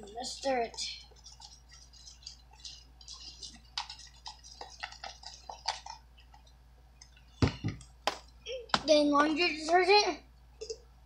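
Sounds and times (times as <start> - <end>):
slime stirred in plastic bowl: 0.0 - 6.5.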